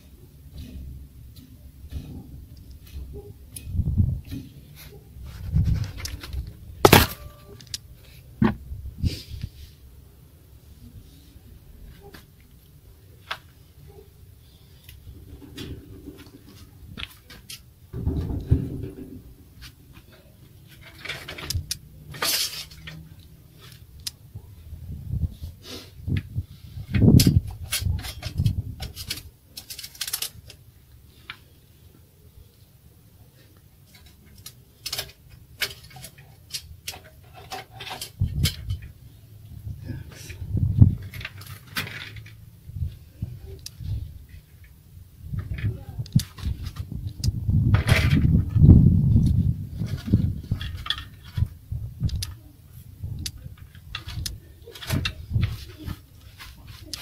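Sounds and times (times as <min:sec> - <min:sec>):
harsh rustling scrape: 0:04.6 - 0:07.6
clothing rubbing on microphone: 0:05.2 - 0:06.4.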